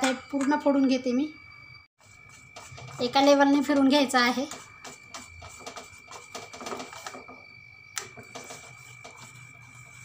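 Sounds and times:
whisk beating batter in metal bowl: 0:02.0 - 0:07.4, 0:08.0 - 0:10.0.

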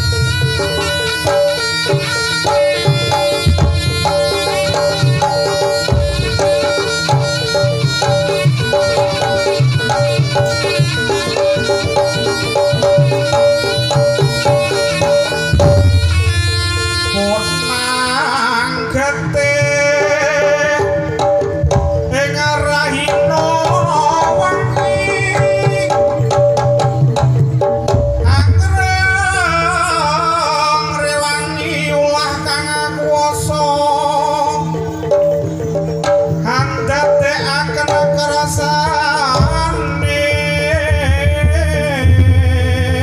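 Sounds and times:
hand drums beating: 0:00.0 - 0:17.3, 0:19.7 - 0:30.1, 0:35.1 - 0:43.0
reedy wind instrument: 0:00.0 - 0:43.0.

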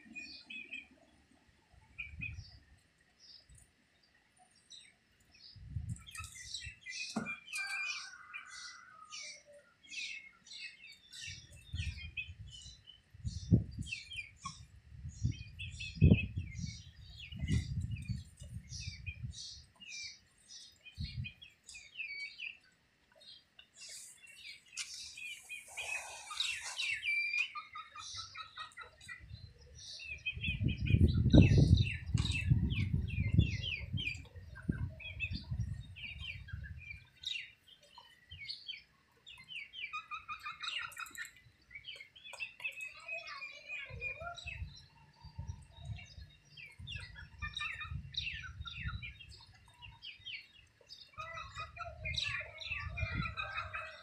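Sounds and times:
chicks peeping: 0:10.9 - 0:54.0.

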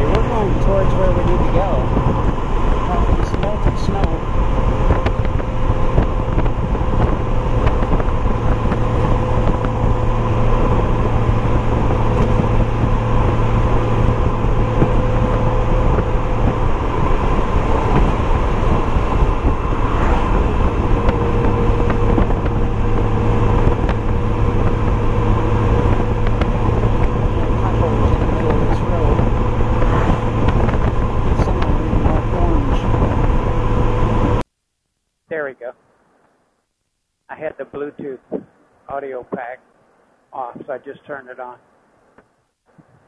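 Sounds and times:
wind noise: 0:00.0 - 0:34.4
engine running steadily: 0:00.0 - 0:34.5
road noise: 0:00.0 - 0:34.5.

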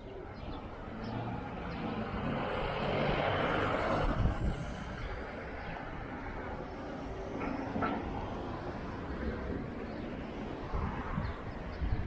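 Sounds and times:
vehicle passing by: 0:00.8 - 0:05.3.

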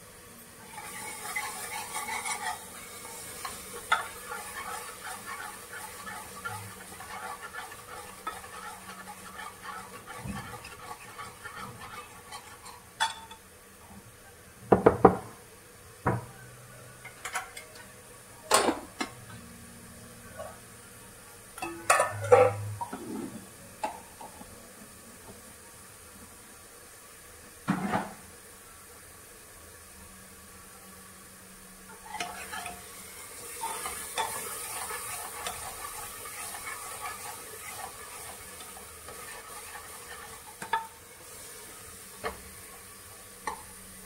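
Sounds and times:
spoon stirring in a pot: 0:00.7 - 0:13.4, 0:31.9 - 0:32.9, 0:33.5 - 0:41.0
utensils clanking against pot: 0:21.6 - 0:24.4.

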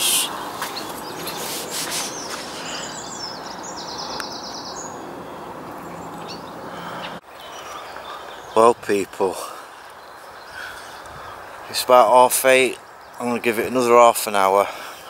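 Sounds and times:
outdoor background hiss: 0:00.0 - 0:15.0
small birds chirping: 0:00.0 - 0:15.0.

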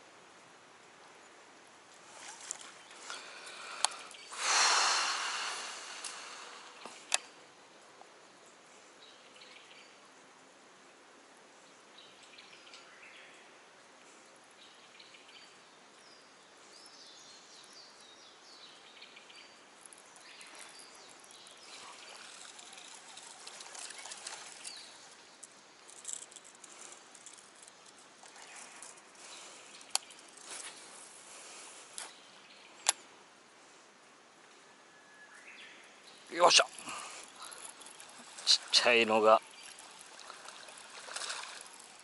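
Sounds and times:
lure splashing and gurgling water: 0:02.0 - 0:06.3, 0:19.8 - 0:31.3, 0:36.3 - 0:42.0
insect chirps: 0:02.0 - 0:07.6, 0:16.8 - 0:33.1, 0:35.2 - 0:42.0.

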